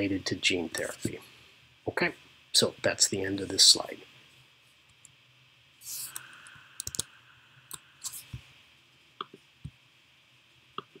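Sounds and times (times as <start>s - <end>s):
computer mouse clicks: 6.1s - 7.1s.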